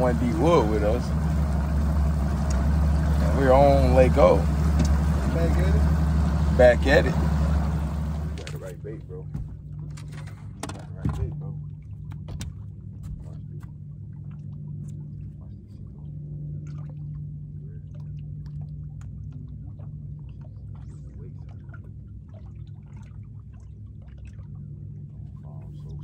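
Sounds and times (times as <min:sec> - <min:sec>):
steady low hum: 0:00.0 - 0:26.0
water lapping against boat hull: 0:00.0 - 0:26.0.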